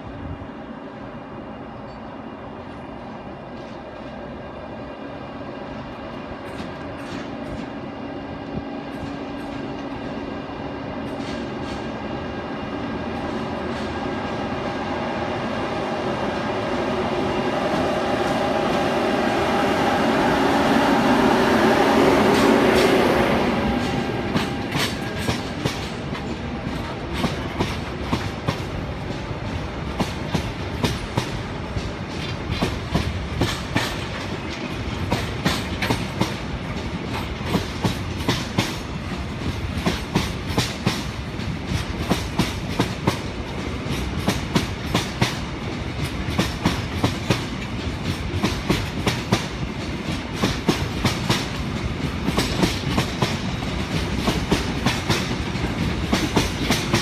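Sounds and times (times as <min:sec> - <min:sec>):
train wheels clickety-clack: 0:03.4 - 0:04.2, 0:05.8 - 0:12.2, 0:13.0 - 0:14.4, 0:20.6 - 0:57.0.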